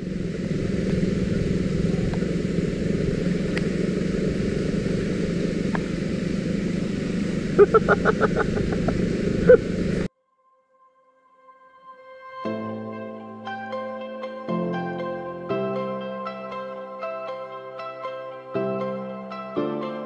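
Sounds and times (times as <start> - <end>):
scooter engine running: 0.0 - 10.1
wind and tyre noise on gravel: 0.0 - 10.1
short pitched pulses: 6.6 - 10.1.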